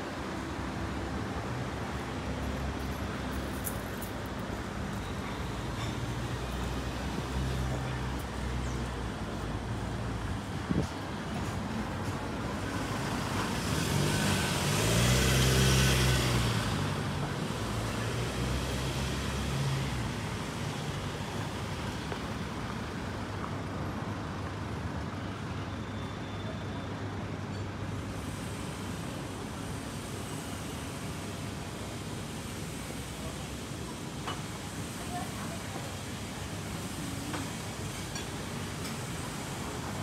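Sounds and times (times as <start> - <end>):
distant traffic hum: 0.0 - 40.0
vehicle driving past: 13.6 - 17.0.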